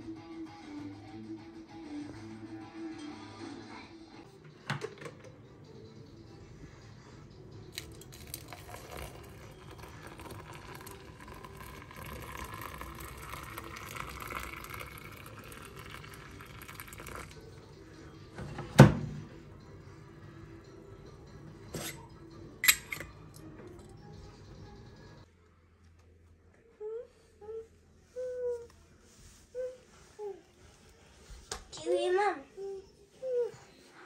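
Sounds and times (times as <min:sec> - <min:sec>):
water running into a container: 0:07.8 - 0:17.4.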